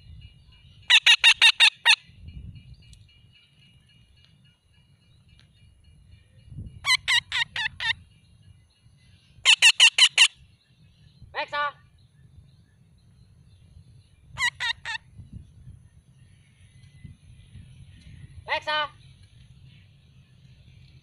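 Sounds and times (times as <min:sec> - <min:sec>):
low rattling bird call: 0:00.0 - 0:20.9
parakeet calling loudly: 0:00.9 - 0:02.0, 0:06.8 - 0:08.0, 0:09.4 - 0:10.4, 0:14.4 - 0:15.1.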